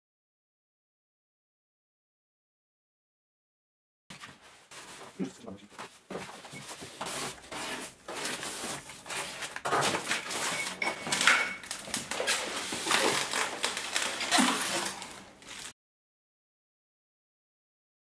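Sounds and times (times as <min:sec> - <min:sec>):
plastic wrapping rustling: 0:04.2 - 0:15.8
foam scraping with squeaks: 0:06.4 - 0:10.8, 0:12.1 - 0:15.7.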